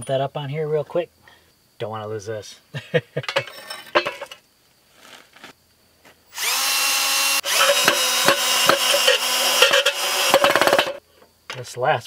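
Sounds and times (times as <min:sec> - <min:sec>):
cordless drill driving screw: 0:06.3 - 0:11.0
drill clutch clicking: 0:06.4 - 0:11.0.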